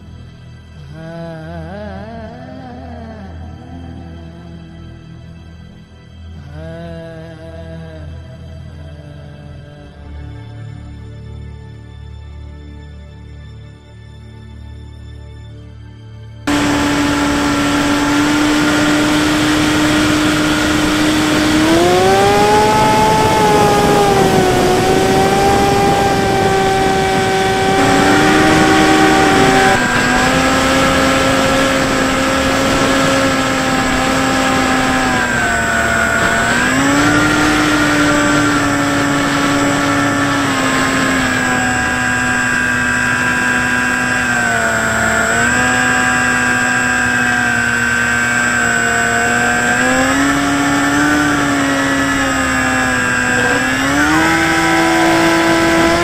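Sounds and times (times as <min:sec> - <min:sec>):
wind noise: 0:16.5 - 0:47.2
electric motor and propeller whining: 0:16.5 - 0:56.0.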